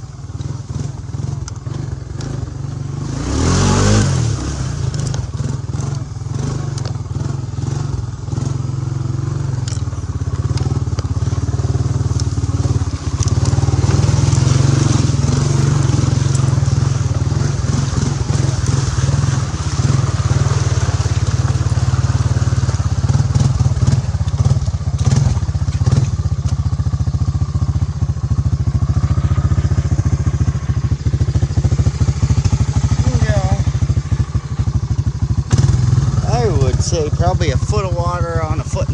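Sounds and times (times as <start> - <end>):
atv engine running: 0.0 - 38.9
brush and mud hitting machine: 9.6 - 26.6.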